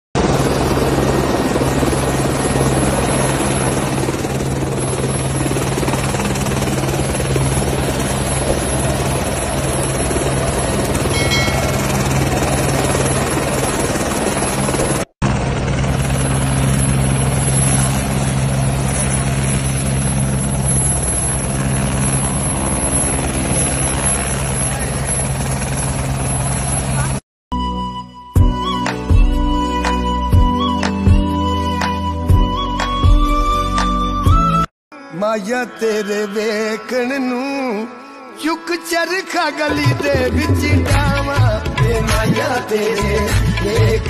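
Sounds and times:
helicopter engine and rotor drone: 0.2s - 27.2s, 39.1s - 44.0s.

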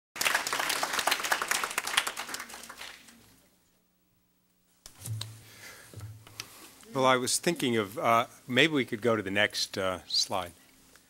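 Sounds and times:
audience applauding: 0.2s - 3.1s.

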